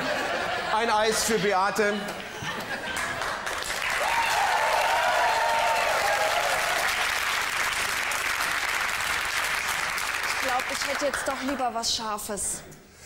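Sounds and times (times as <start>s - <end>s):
audience applauding: 2.0s - 11.8s.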